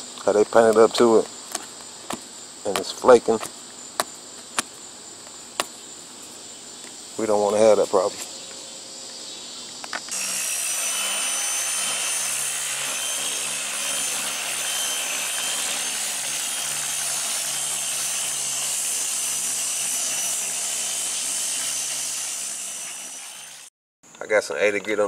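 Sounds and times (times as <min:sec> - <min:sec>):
sander whining and hissing: 0:04.6 - 0:23.7.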